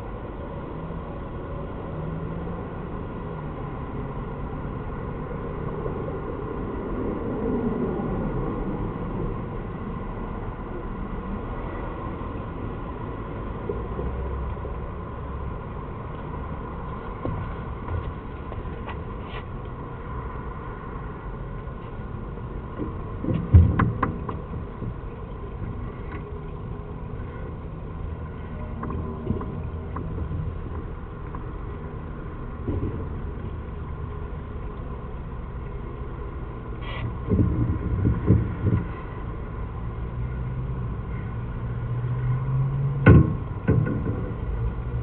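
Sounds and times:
low rumble and hum: 0:00.0 - 0:45.0
dull knocks and thumps: 0:22.8 - 0:26.2, 0:37.2 - 0:39.1, 0:43.0 - 0:44.6.

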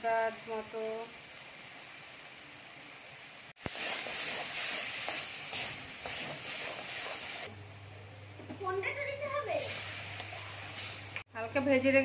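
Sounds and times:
spices sizzling in hot oil: 0:00.0 - 0:07.6, 0:08.6 - 0:12.0
metal spatula scraping pan: 0:03.7 - 0:07.5.

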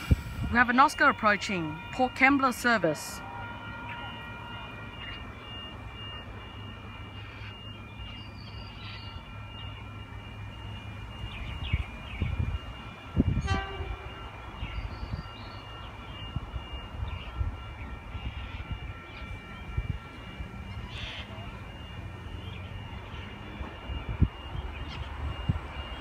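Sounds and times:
train horn toot: 0:00.5 - 0:05.5, 0:12.8 - 0:15.2.

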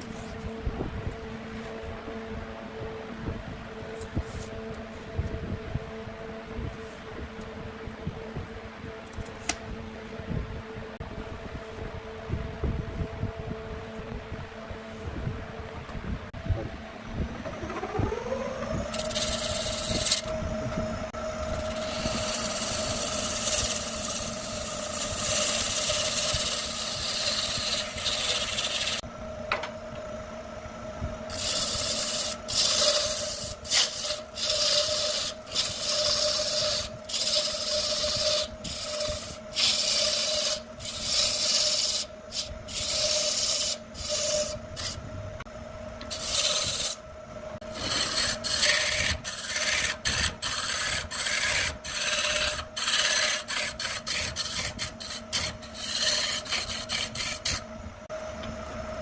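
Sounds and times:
wood lathe motor humming: 0:17.2 - 0:29.7, 0:31.3 - 0:45.0, 0:46.0 - 0:57.7
turning tool cutting wood: 0:17.5 - 0:20.4, 0:21.4 - 0:29.0, 0:31.3 - 0:45.0, 0:46.0 - 0:47.0, 0:47.6 - 0:57.6
wood shavings hissing: 0:31.3 - 0:45.0.

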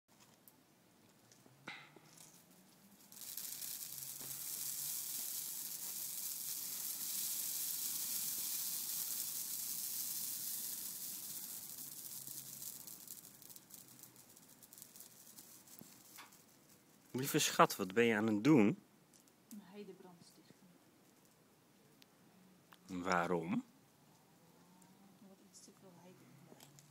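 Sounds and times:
hissing crackle of burning twigs: 0:02.0 - 0:18.0.

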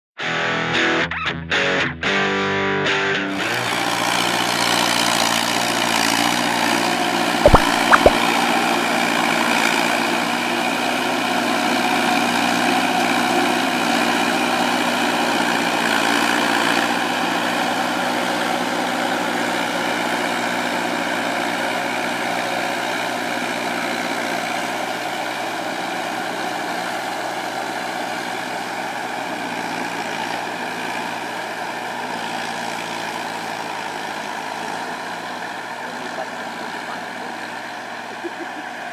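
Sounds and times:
sharp clicks: 0:07.5 - 0:08.2.

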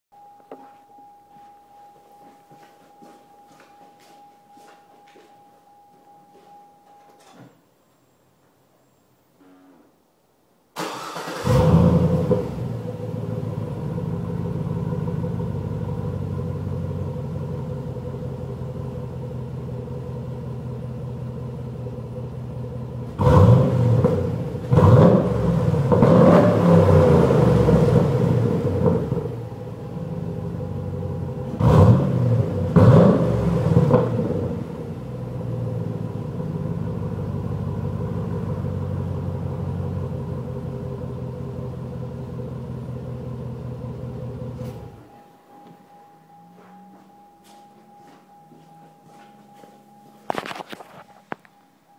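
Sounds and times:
engine idling and revving: 0:11.4 - 0:45.0.

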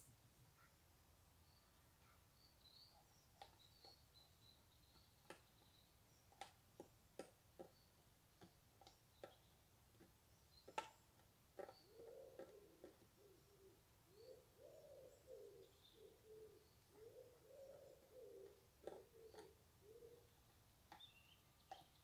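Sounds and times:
small bird calls: 0:00.0 - 0:00.8, 0:01.4 - 0:22.0
pigeon cooing: 0:11.6 - 0:20.4.

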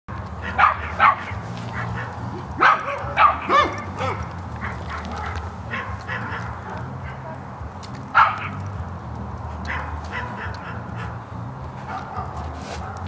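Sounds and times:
yelping animal calls: 0:00.4 - 0:07.4.

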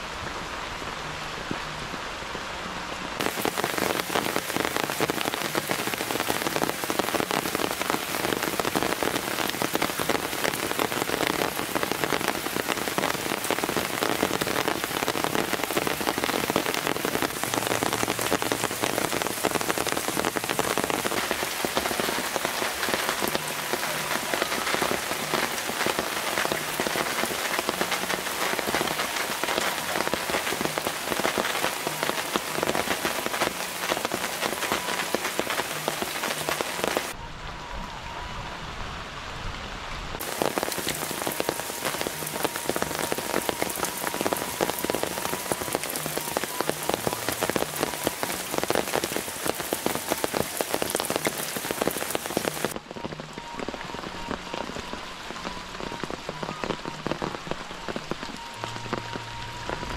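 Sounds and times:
rain on foliage: 0:00.0 - 0:59.9.

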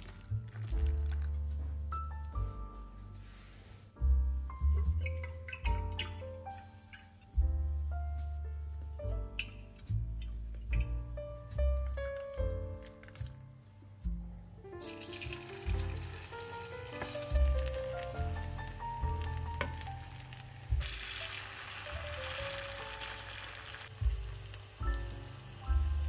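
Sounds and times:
batter sizzling in hot oil: 0:14.8 - 0:26.0.

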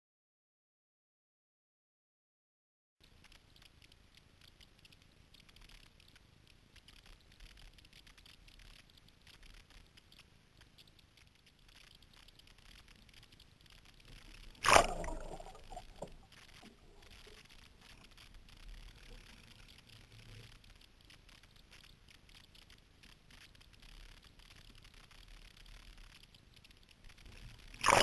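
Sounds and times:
water lapping and dripping: 0:03.0 - 0:28.0
muffled underwater splashes and gurgles: 0:14.2 - 0:17.5, 0:27.8 - 0:28.0
loud splash: 0:14.6 - 0:16.2.

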